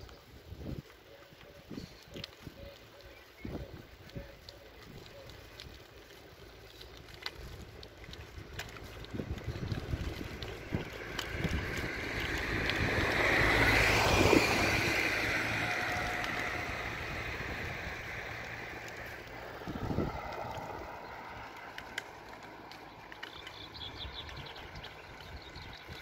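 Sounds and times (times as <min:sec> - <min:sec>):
vehicle passing by: 0:05.6 - 0:26.0.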